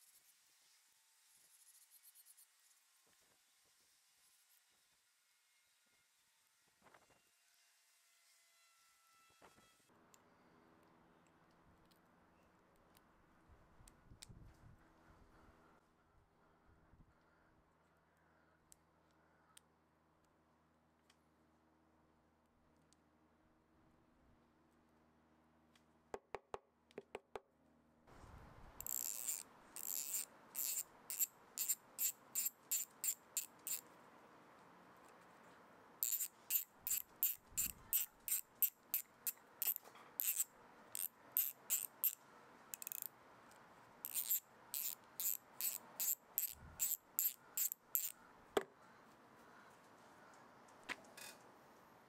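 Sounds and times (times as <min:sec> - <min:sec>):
ratchet pawl clicking: 0:28.8 - 0:33.8, 0:36.0 - 0:42.2, 0:42.8 - 0:43.1, 0:44.0 - 0:48.2.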